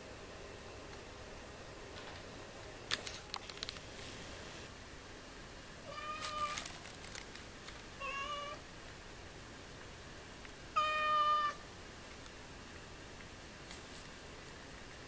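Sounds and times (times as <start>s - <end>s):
cat meowing: 5.9s - 6.6s, 8.0s - 8.6s, 10.8s - 11.6s.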